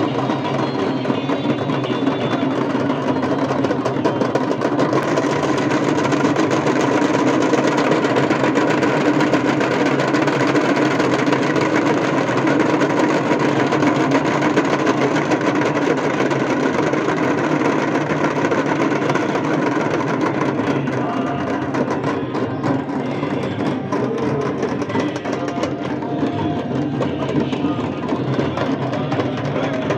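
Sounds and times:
drums: 0:00.0 - 0:29.9.

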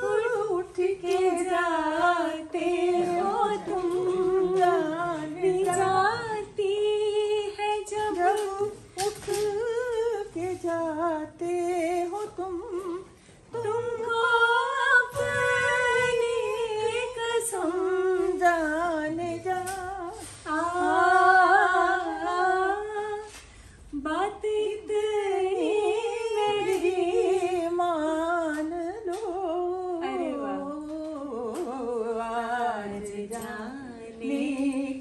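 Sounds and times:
woman singing without words: 0:00.0 - 0:23.4.

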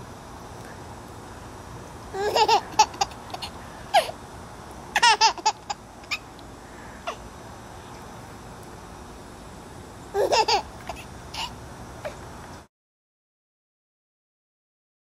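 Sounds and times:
baby laughing: 0:02.2 - 0:04.1, 0:05.0 - 0:06.2, 0:10.2 - 0:11.6.

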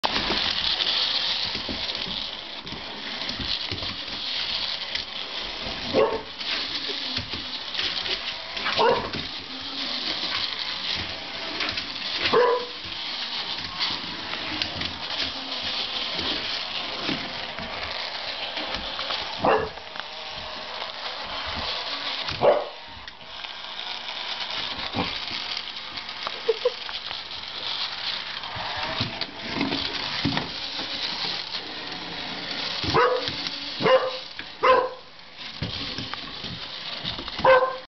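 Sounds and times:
puppy barking: 0:05.9 - 0:06.3, 0:08.8 - 0:09.1, 0:12.3 - 0:12.8, 0:19.4 - 0:19.8, 0:22.4 - 0:22.7, 0:32.9 - 0:35.1, 0:37.4 - 0:37.9.

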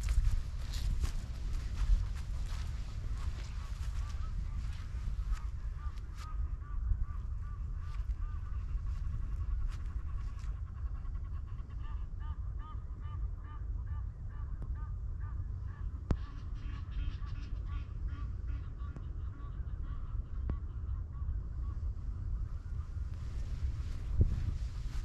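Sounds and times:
steady low rumble: 0:00.0 - 0:25.0
geese honking: 0:00.6 - 0:13.8, 0:15.2 - 0:21.4.

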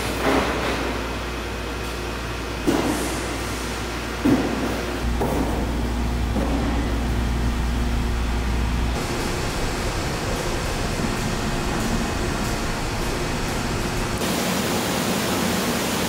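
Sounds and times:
low machine hum: 0:00.0 - 0:16.0
mechanical factory hiss: 0:08.9 - 0:16.0.

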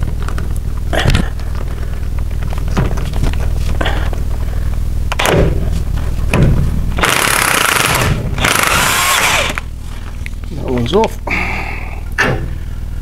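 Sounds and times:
impact wrench rattling: 0:06.3 - 0:09.7.

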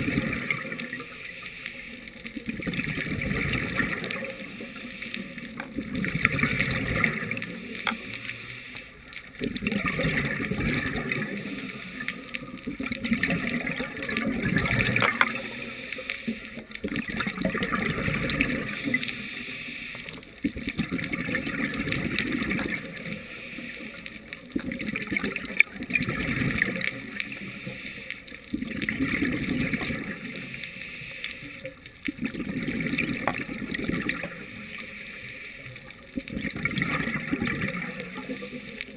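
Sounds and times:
exhaled bubbles gurgling: 0:00.0 - 0:38.9
diver breathing through regulator: 0:38.0 - 0:38.9.

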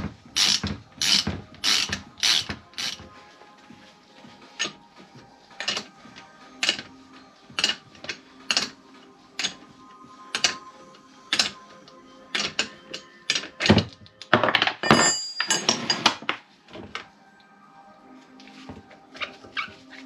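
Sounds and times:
background music with slow beat: 0:00.0 - 0:20.0
tools clattering on wooden bench: 0:04.6 - 0:04.8, 0:05.6 - 0:08.8, 0:09.4 - 0:09.7, 0:10.3 - 0:10.7, 0:11.3 - 0:11.6, 0:12.3 - 0:17.1.

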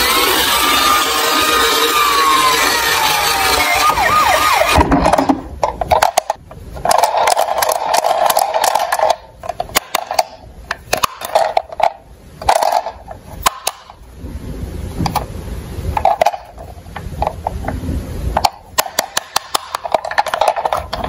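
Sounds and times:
toy police siren: 0:00.0 - 0:04.8
mid-pitched whirr: 0:00.0 - 0:06.4
toy vehicles clicking and rattling: 0:00.0 - 0:14.0, 0:18.4 - 0:21.0.

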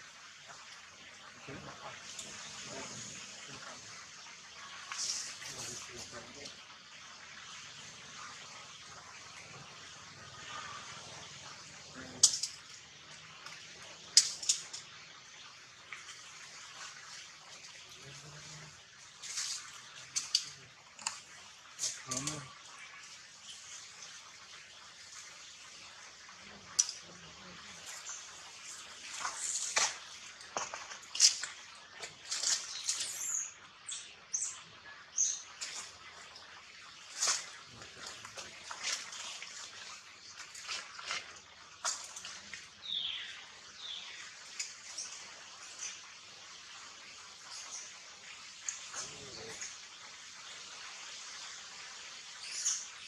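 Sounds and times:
leaves and twigs crackling: 0:04.6 - 0:06.6, 0:11.8 - 0:15.0, 0:16.0 - 0:22.5, 0:26.6 - 0:33.6, 0:35.2 - 0:46.0.

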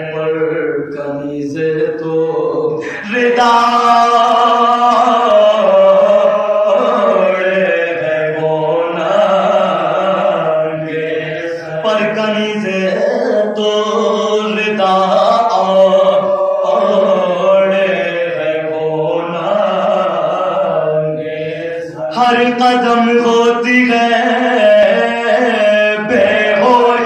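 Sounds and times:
men chanting unaccompanied: 0:00.0 - 0:27.0.

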